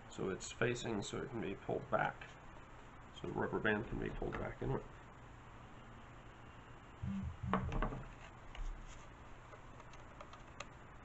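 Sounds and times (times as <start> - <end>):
soft handling knocks and rubs: 7.5 - 9.7.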